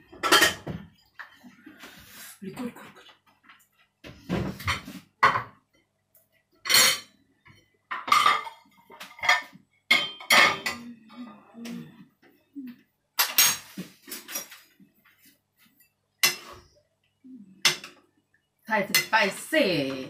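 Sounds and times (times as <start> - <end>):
ceramic plates clattering: 0.1 - 1.4, 6.6 - 7.1, 7.9 - 10.9, 13.2 - 14.7
metal spoon clinking dishes: 8.0 - 10.9, 16.2 - 16.6.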